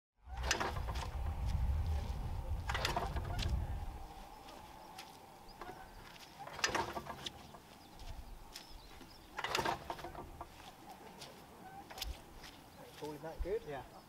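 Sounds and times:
radial engine mechanical clatter: 6.4 - 7.6, 9.3 - 10.5.

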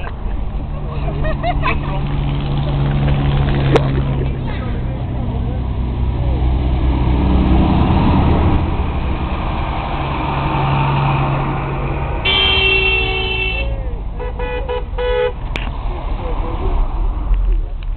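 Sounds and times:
diesel tractors passing: 0.0 - 17.9
vehicle horn blasts and toots: 12.2 - 15.4.

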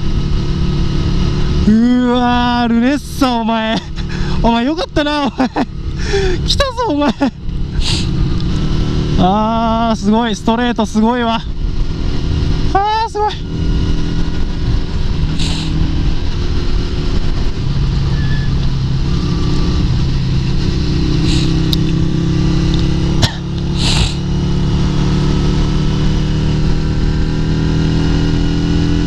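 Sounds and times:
motorcycle engine running: 0.0 - 29.0
wind noise rushing: 11.2 - 29.0.

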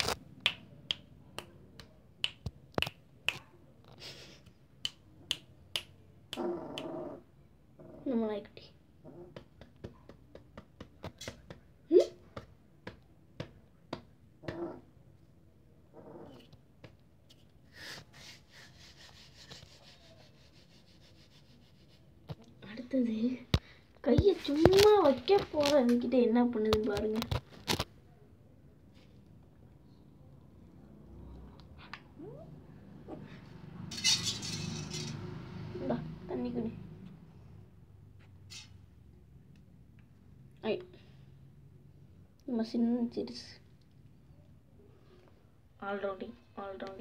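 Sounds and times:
fingers snapping: 0.1 - 3.5.

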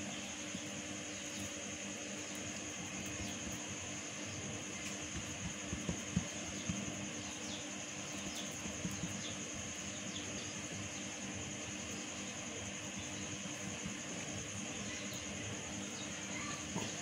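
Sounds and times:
background hum: 0.0 - 17.0
hands patting dough on countertop: 4.9 - 6.9.

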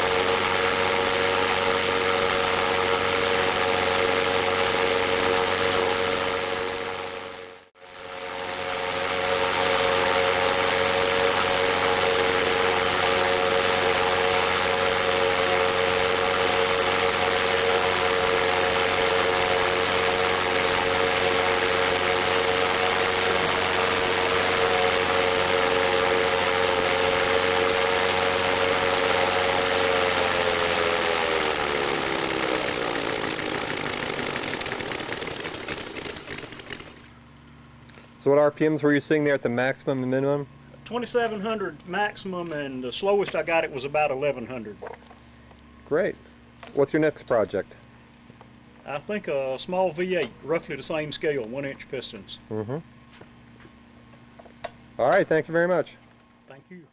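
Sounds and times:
model radial engine running: 0.0 - 37.2.

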